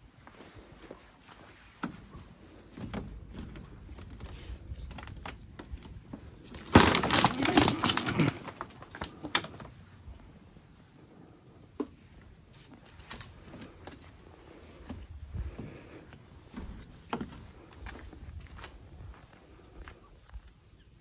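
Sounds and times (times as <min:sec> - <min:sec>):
footsteps on bamboo floor: 0:00.0 - 0:09.8, 0:11.8 - 0:20.0
bamboo slats clattering: 0:02.8 - 0:09.8.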